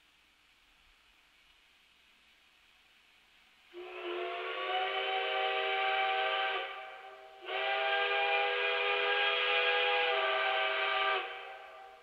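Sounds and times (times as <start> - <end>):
steam locomotive whistle: 3.8 - 12.0.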